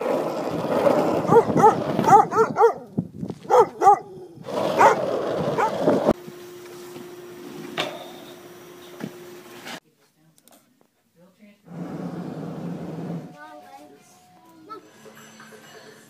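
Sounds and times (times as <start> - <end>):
large dog barking: 1.2 - 5.9.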